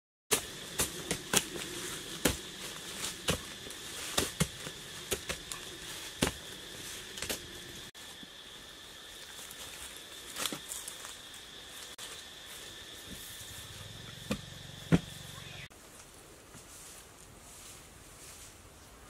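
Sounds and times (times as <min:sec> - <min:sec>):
digging sticks knocking on soil: 0:00.3 - 0:06.5
soil scraping: 0:00.3 - 0:07.9
high insect drone: 0:00.3 - 0:19.0.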